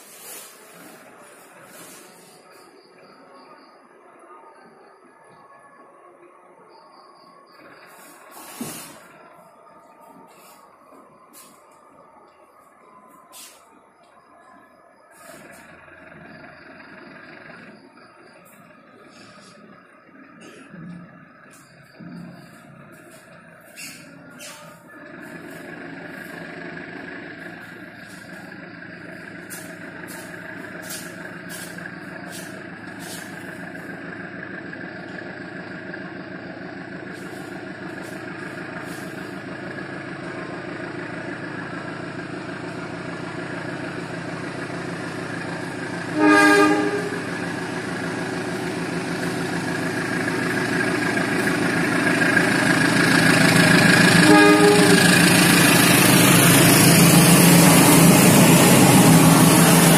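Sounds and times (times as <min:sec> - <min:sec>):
locomotive engine drone: 0:00.0 - 0:59.9
train horn blast: 0:46.0 - 0:48.8, 0:54.0 - 0:59.9.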